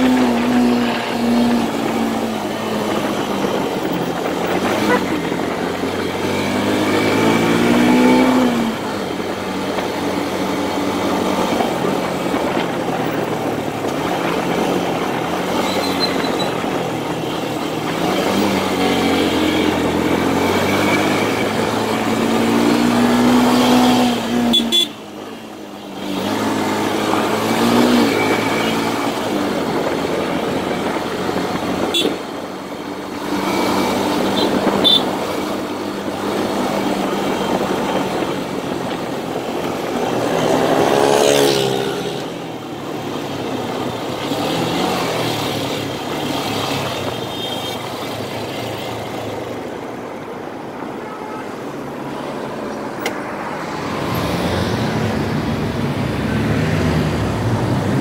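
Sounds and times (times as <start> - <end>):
motorcycle engine accelerating: 0.0 - 24.6, 53.2 - 58.0.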